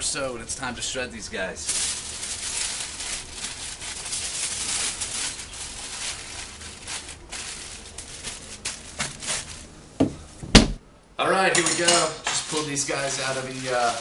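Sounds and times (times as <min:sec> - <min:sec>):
aluminium foil crinkling: 0:01.6 - 0:09.8, 0:11.9 - 0:14.0.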